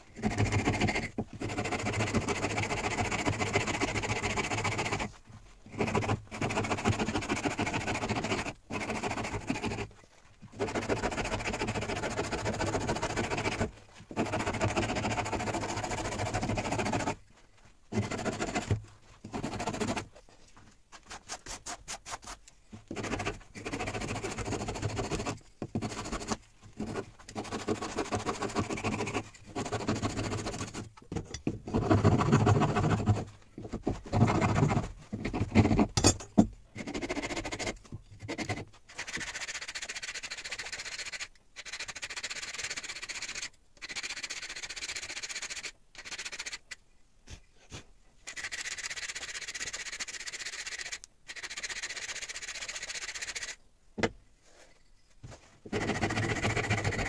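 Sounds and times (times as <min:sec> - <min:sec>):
metal file rasping wood: 0:00.1 - 0:17.2, 0:17.9 - 0:20.1, 0:21.4 - 0:30.8, 0:31.6 - 0:44.3, 0:55.7 - 0:57.0.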